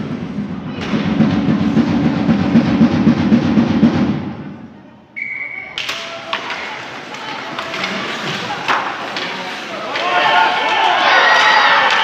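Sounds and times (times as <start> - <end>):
rapid drumming: 0.7 - 4.6.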